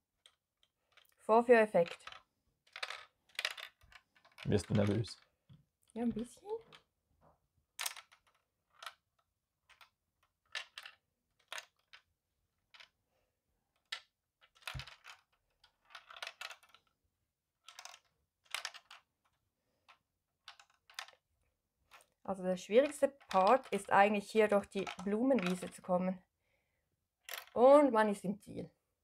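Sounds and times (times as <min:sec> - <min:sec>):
ball rattling in plastic maze: 0:01.8 - 0:05.4, 0:07.8 - 0:13.0, 0:13.7 - 0:17.0, 0:17.6 - 0:21.3, 0:21.9 - 0:25.9, 0:27.2 - 0:27.7.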